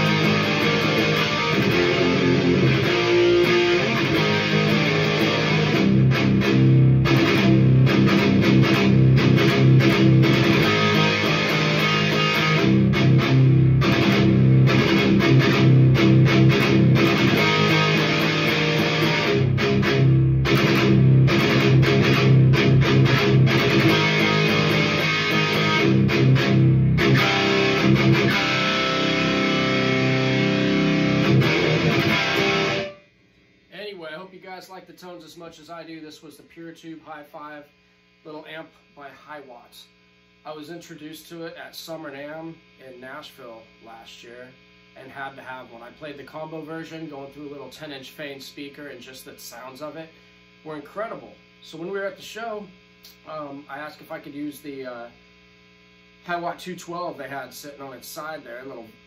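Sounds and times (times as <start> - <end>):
high-gain electric guitar riffing: 0.0 - 33.0.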